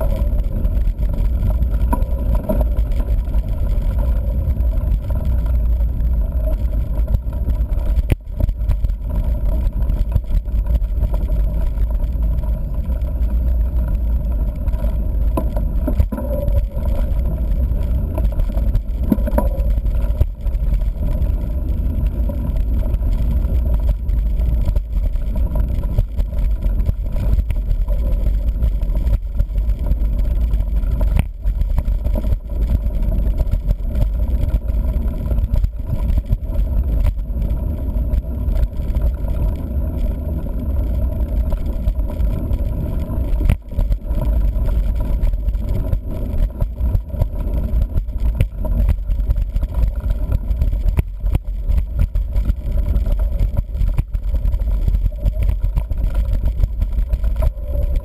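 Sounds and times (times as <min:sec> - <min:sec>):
bike knocks and rattles: 0:00.0 - 0:58.0
wind and tyre rumble: 0:00.0 - 0:58.0.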